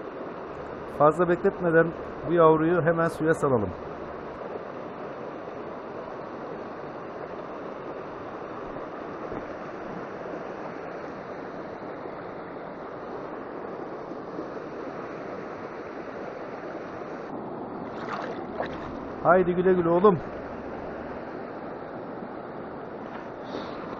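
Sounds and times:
river water running over stones: 14.3 - 23.9.

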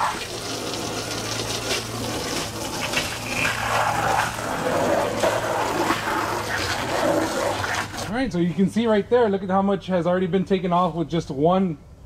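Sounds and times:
hose water splashing on metal: 0.0 - 8.2.

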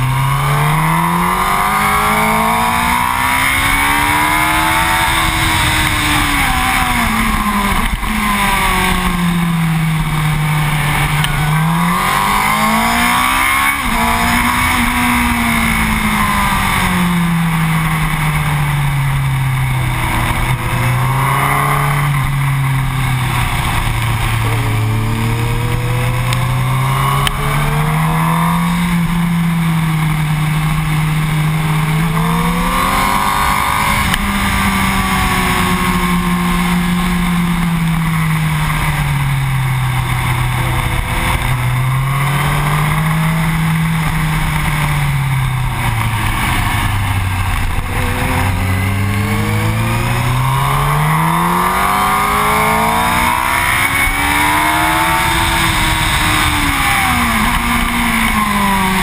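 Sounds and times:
motorcycle engine accelerating: 0.0 - 59.0
wind rush on microphone: 0.9 - 29.7, 44.2 - 59.0.

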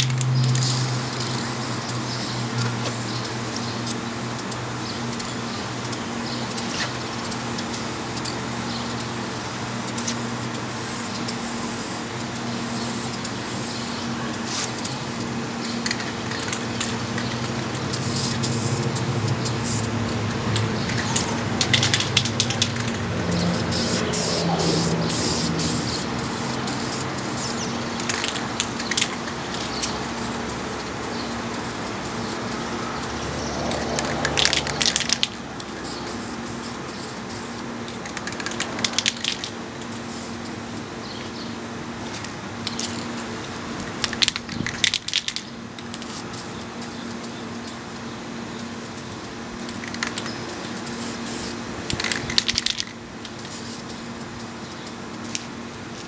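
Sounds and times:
spray can clicks and rattles: 0.0 - 9.2, 9.8 - 12.1, 15.6 - 30.6, 33.2 - 40.6, 42.0 - 47.0, 49.6 - 56.0
spray can hissing: 0.0 - 20.2, 20.8 - 40.8, 48.9 - 55.5.

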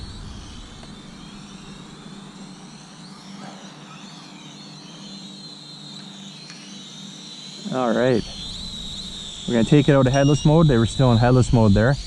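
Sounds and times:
toy quadcopter motors whining: 2.4 - 12.0.

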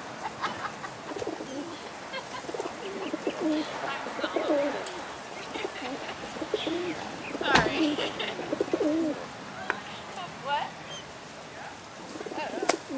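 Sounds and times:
pigeons cooing: 1.1 - 9.2, 12.0 - 12.9.

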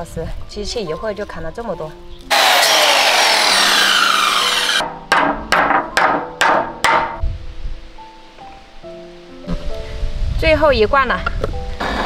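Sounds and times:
electric chopper whirring: 2.3 - 4.8
sharp knocks: 4.5 - 7.2.

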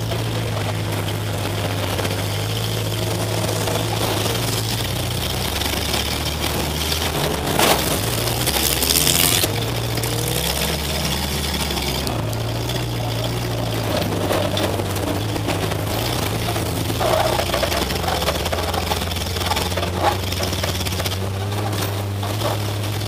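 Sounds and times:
car engine revving: 0.0 - 23.0
harsh rushing noise: 0.0 - 23.0
car crash: 3.3 - 21.1.

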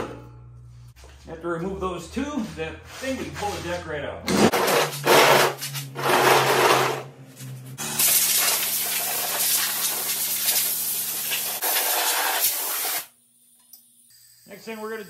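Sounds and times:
steady low hum: 0.0 - 4.6
compressed air hissing: 8.0 - 13.1.

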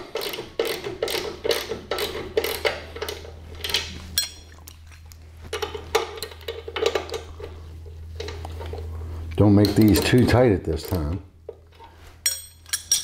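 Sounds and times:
ringing metal clink: 12.2 - 13.0.

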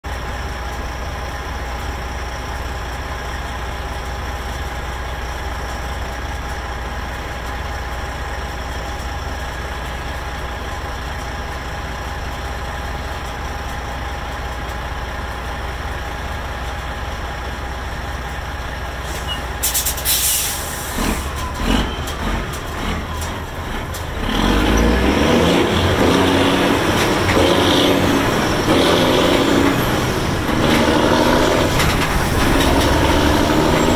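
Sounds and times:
diesel truck engine: 0.0 - 33.9
air brake hiss: 19.0 - 21.2.

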